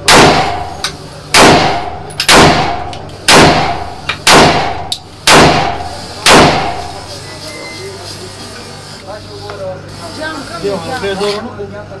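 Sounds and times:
pistol shots ringing: 0.0 - 7.0.

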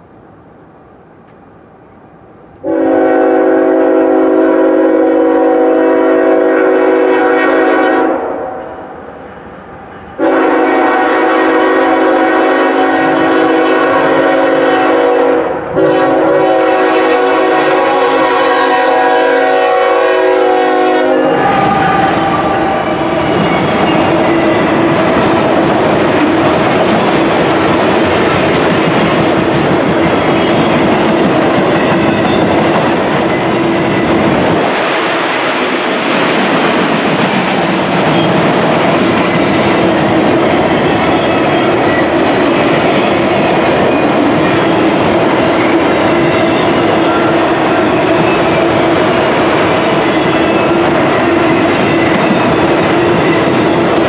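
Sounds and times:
train passing: 0.0 - 54.0
locomotive air horn: 2.6 - 8.9, 10.2 - 23.4, 46.2 - 49.3.

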